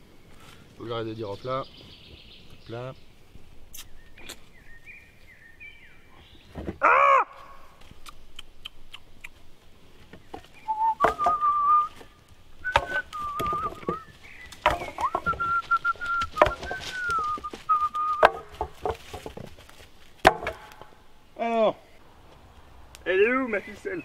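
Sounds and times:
sticks knocking and rustling: 9.6s - 21.1s
person whistling a tune: 10.7s - 11.9s, 12.6s - 14.0s, 15.0s - 18.3s.

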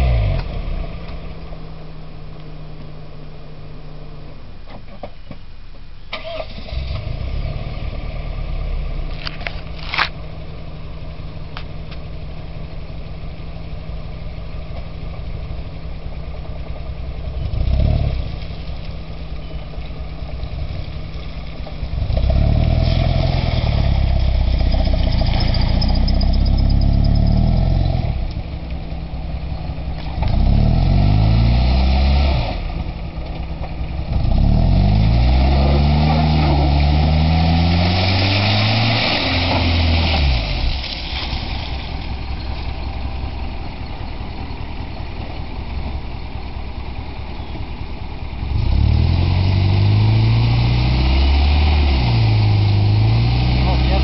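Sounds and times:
car engine revving: 20.0s - 44.8s, 48.4s - 54.0s.

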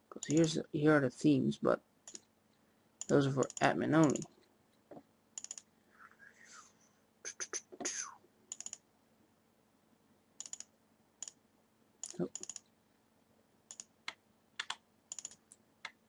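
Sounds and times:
mouse clicks: 8.5s - 8.8s, 10.4s - 11.4s, 13.7s - 16.0s.

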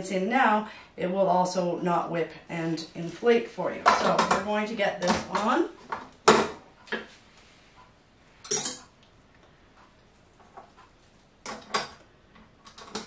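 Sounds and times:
metal bowl clanking and clinking: 8.4s - 8.9s.

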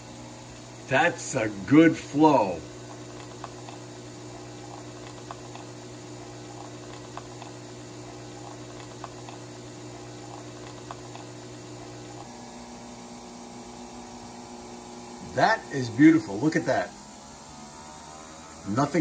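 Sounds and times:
coffee machine hum: 0.0s - 19.0s
coffee streaming into mug: 2.7s - 12.4s.

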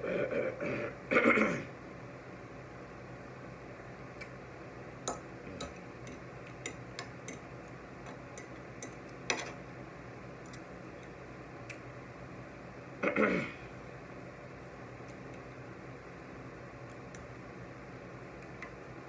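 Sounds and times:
fork clicking and scraping plate: 5.1s - 9.6s.

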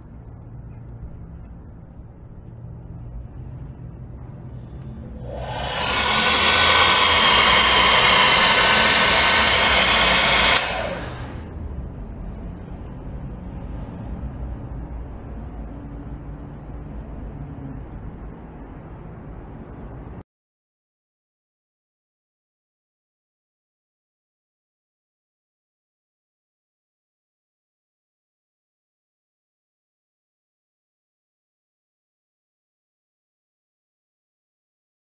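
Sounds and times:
low hum: 0.0s - 20.2s
rushing air: 4.4s - 12.0s
electric motors whining: 4.8s - 11.5s.

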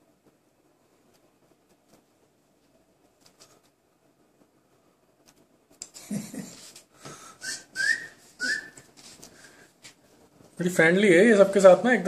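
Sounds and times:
person whistling breathy chirps: 7.1s - 8.9s.

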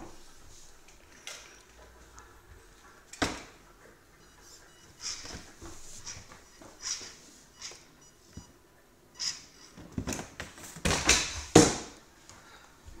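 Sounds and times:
toy car motor whirring: 5.0s - 5.4s.

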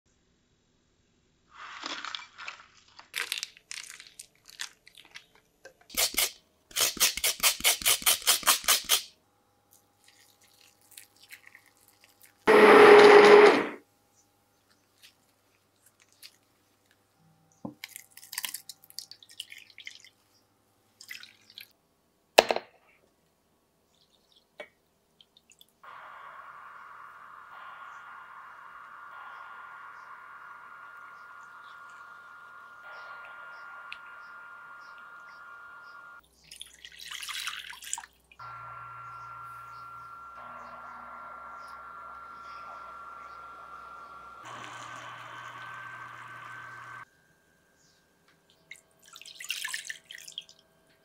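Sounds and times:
stick blender running: 12.5s - 13.8s, 25.9s - 36.2s, 38.4s - 47.0s.

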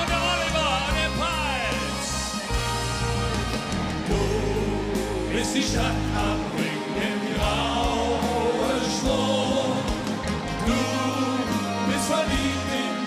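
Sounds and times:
drums: 0.0s - 13.0s
electric guitars: 0.0s - 13.0s
people singing together: 4.1s - 13.0s.

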